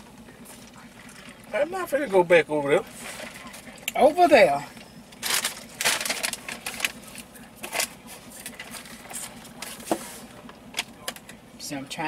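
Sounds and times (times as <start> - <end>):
small clicks and crackles: 5.2 - 9.8.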